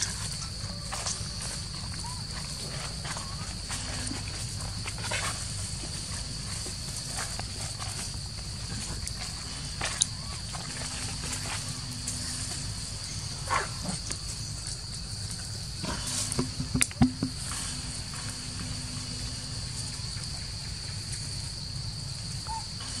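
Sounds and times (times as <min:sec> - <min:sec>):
insects droning: 0:00.0 - 0:23.0
knocks and rustles on tree: 0:15.8 - 0:18.2.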